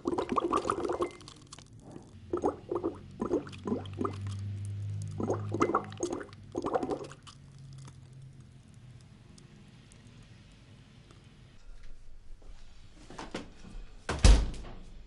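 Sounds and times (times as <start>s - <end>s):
drink gurgling through straw: 0.0s - 8.6s
low steady hum: 0.0s - 13.0s.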